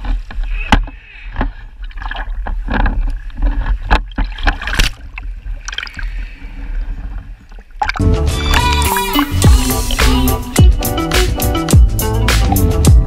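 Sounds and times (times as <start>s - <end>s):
water splashing and sloshing: 0.0s - 10.6s
steady low rumble: 6.9s - 11.0s.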